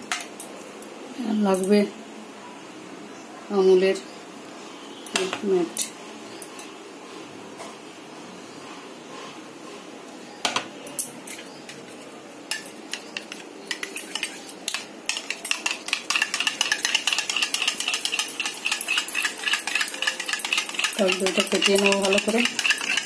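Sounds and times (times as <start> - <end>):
kitchen utensils clinking: 10.5 - 23.0
spoon stirring in metal pan: 11.2 - 23.0.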